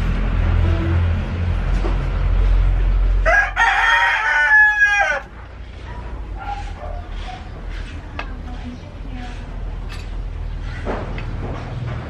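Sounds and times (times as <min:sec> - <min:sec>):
rooster crowing: 0:03.2 - 0:05.4.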